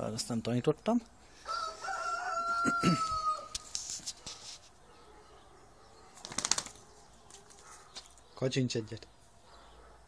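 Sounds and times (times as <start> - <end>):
rooster crowing: 1.4 - 3.6.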